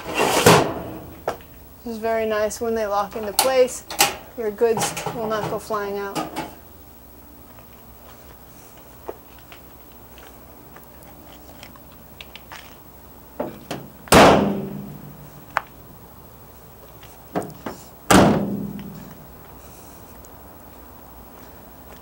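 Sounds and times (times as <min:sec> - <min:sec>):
van doors slamming shut: 0:13.4 - 0:15.2, 0:17.3 - 0:19.1.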